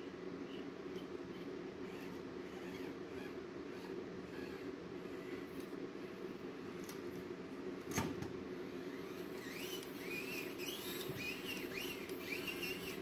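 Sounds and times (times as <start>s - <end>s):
squeaky whines: 0.4s - 5.6s, 8.8s - 13.0s
small electric motor whirring: 1.0s - 5.6s, 8.8s - 13.0s.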